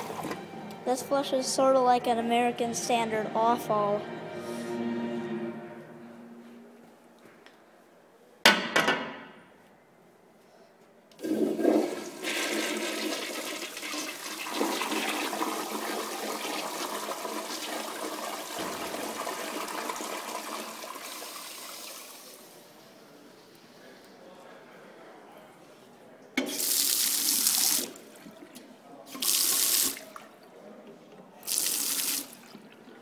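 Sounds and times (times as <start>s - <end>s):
toilet flushing: 0.0s - 0.5s, 11.2s - 22.7s, 26.4s - 30.4s, 31.4s - 33.0s.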